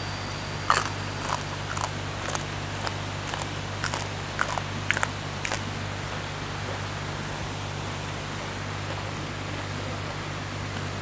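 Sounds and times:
vegetable stems snapping: 0.7s - 5.6s.

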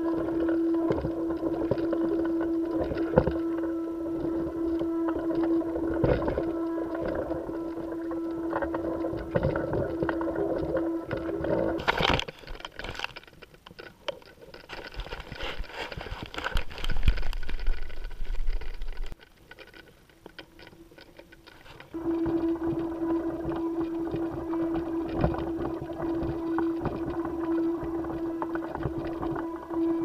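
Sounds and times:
steady low hum: 0.0s - 13.1s, 20.4s - 30.0s.

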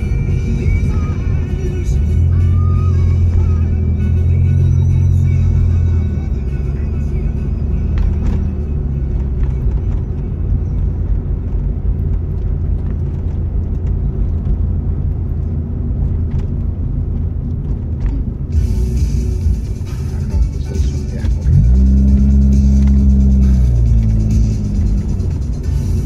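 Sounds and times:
music playing: 0.0s - 11.2s, 18.4s - 26.0s
car driving rumble from inside: 0.0s - 26.0s.

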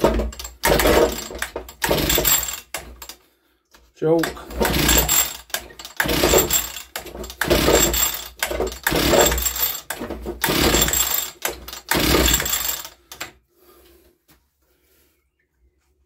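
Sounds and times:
recoil starter cord pulls: 0.0s - 3.2s, 4.2s - 13.4s
engine turning over whirr: 10.4s - 13.0s.

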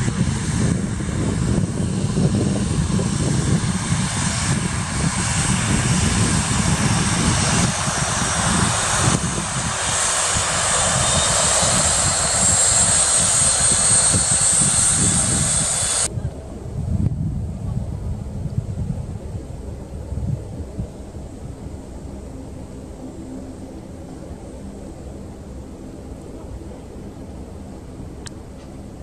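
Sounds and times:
jet engines taxiing: 0.0s - 29.0s.

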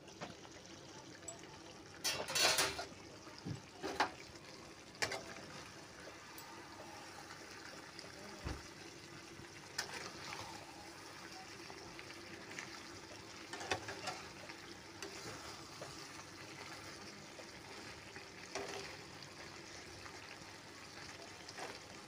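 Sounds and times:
curry sizzling in a pan: 0.0s - 22.0s
spatula scraping a pan: 9.7s - 10.7s, 13.4s - 19.1s.

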